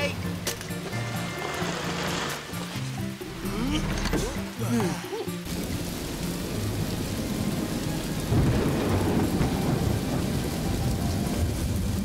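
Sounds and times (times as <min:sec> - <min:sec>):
heavy rain falling: 0:00.0 - 0:12.0
thunder rumbling: 0:05.5 - 0:12.0.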